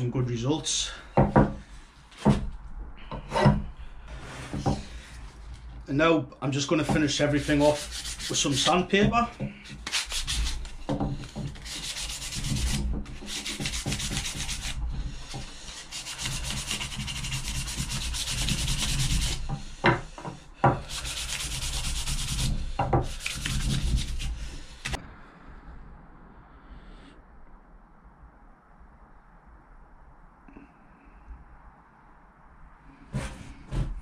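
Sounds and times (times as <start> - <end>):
sharp knocks: 1.2 - 1.6
sandpaper rubbing on wood: 6.8 - 25.0.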